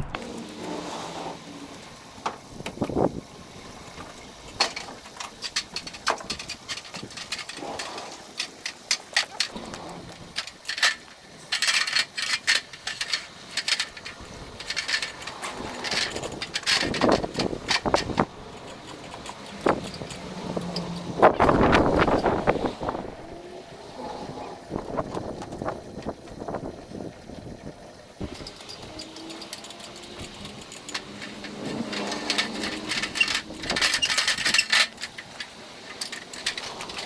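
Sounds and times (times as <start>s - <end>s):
metal ladder clanking: 4.5s - 22.4s, 28.2s - 37.0s.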